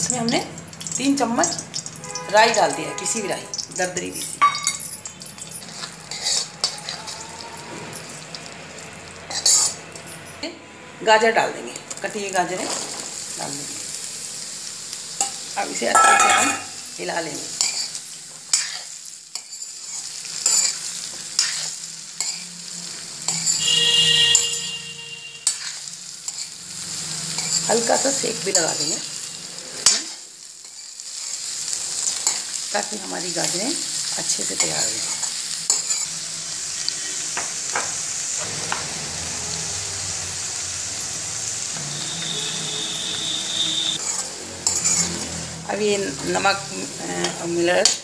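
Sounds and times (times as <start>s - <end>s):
oil sizzling: 0.0s - 10.5s, 11.1s - 48.0s
metal spoon scraping a metal pan: 0.8s - 8.4s, 9.3s - 10.4s, 15.2s - 16.8s, 17.5s - 22.6s, 23.2s - 32.6s, 34.5s - 36.2s, 41.8s - 45.6s.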